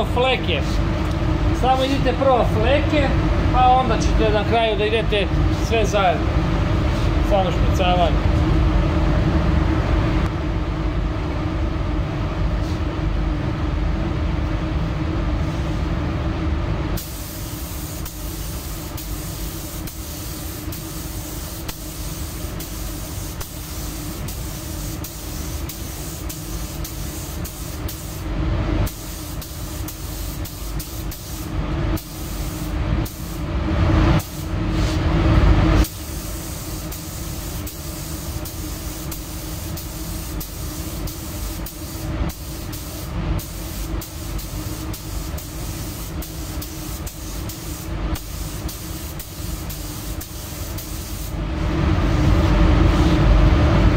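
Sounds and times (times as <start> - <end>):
low machine hum: 0.0 - 53.9
paint spray gun hissing: 17.0 - 28.2, 28.9 - 33.4, 35.8 - 51.3.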